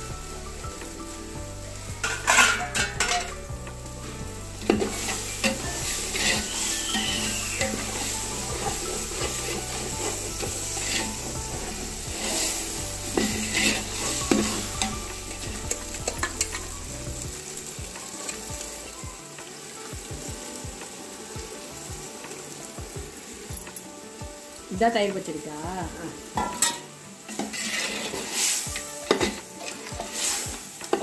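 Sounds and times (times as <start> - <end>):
food sizzling: 0.0 - 31.0
ladle stirring in metal pot: 2.0 - 3.5, 4.6 - 18.9, 26.3 - 31.0
ladle knocking against pot: 26.4 - 26.8.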